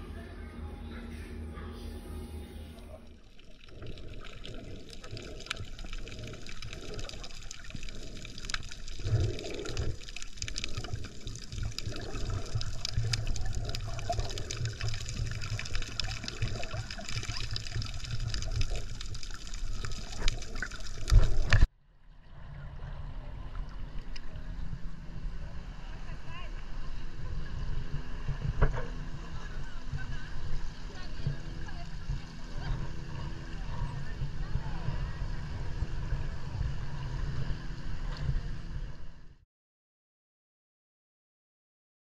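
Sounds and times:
underwater sloshing and bubbling: 0.0s - 39.4s
water lapping: 1.0s - 21.7s, 25.7s - 38.7s
fine underwater clicks: 3.4s - 21.7s.

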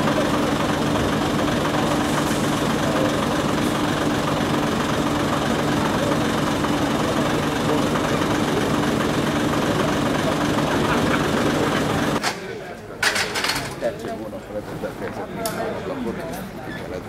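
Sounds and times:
diesel engine idling: 0.0s - 12.2s.

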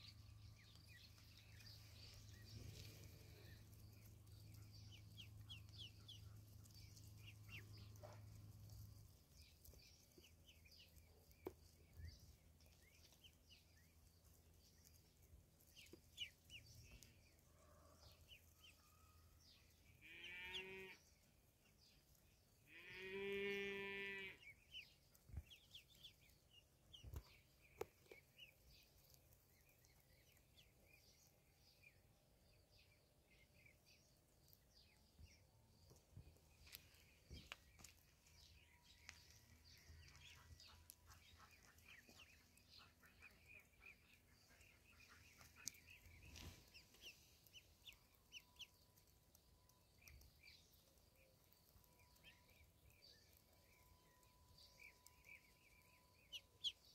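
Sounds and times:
ducklings peeping: 0.0s - 17.5s, 18.1s - 56.9s
farm animal calling: 19.6s - 21.0s, 22.6s - 24.9s.

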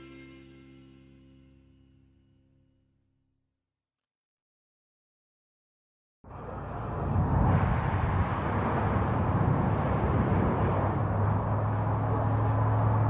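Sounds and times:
flamethrower roar: 6.3s - 13.0s.

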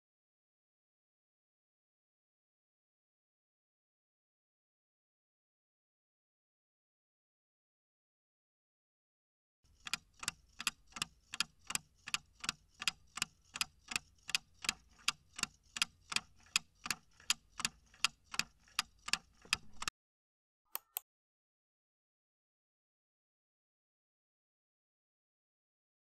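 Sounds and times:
clock ticking: 9.7s - 19.9s.

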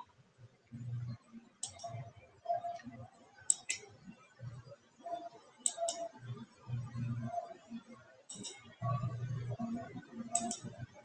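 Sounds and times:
muffled room noise: 0.0s - 11.0s
computer mouse clicks: 1.6s - 2.0s, 3.5s - 3.8s, 5.6s - 6.1s, 8.3s - 8.6s, 10.4s - 10.7s.

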